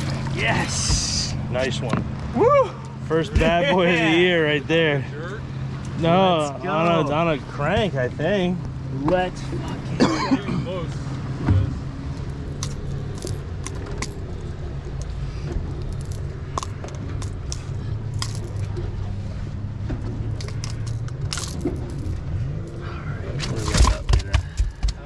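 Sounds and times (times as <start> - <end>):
steady low hum: 0.0 - 25.0
fishing lure hooks clicking and rattling: 12.5 - 15.1, 20.3 - 22.2.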